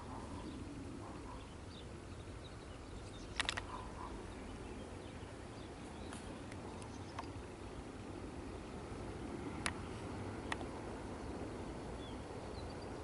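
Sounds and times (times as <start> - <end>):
faint bird chirps: 0.0 - 7.4
low background noise: 0.0 - 13.0
sharp clicks: 3.3 - 3.8.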